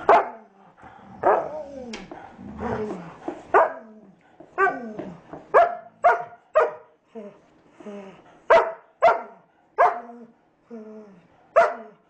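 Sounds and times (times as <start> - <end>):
puppies barking: 0.0 - 0.4, 5.5 - 6.9, 8.5 - 10.2.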